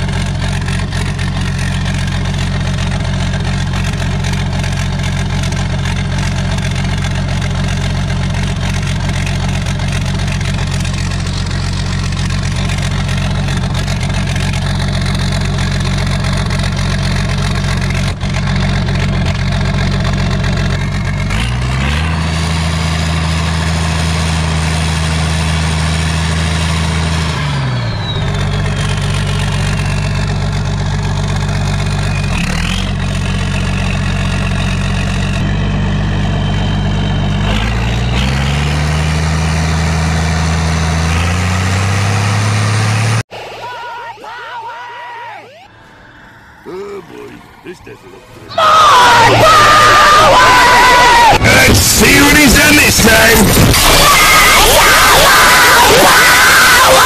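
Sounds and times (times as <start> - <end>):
diesel engine revving: 0.0 - 43.6, 45.5 - 57.0
turbo whistle: 27.6 - 30.1, 43.3 - 48.0.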